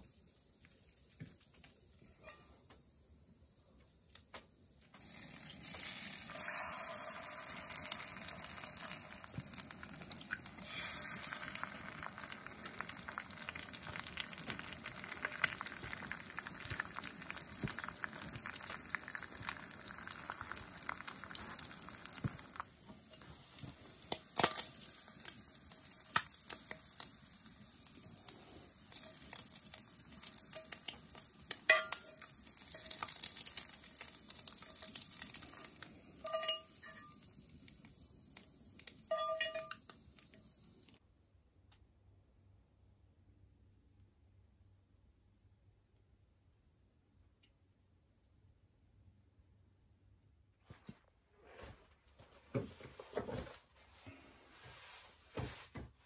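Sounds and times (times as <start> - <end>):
eggs sizzling in hot oil: 4.9 - 41.0.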